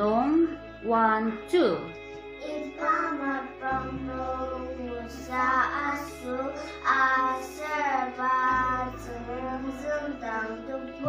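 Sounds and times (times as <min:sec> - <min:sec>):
young children singing: 0:02.3 - 0:11.0.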